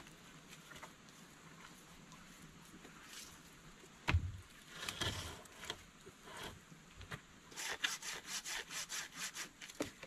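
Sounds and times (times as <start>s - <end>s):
tool scraping wooden stick: 7.5s - 9.8s.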